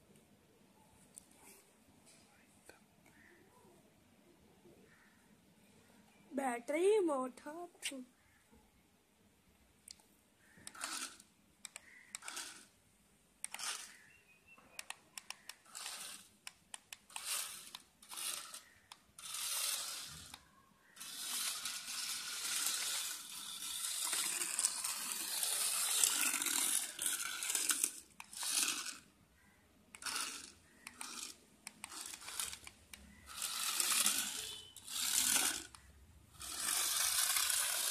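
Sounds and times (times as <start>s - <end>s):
small electric motor whirring: 10.6s - 12.7s, 13.4s - 14.1s, 14.8s - 29.1s, 30.0s - 37.9s.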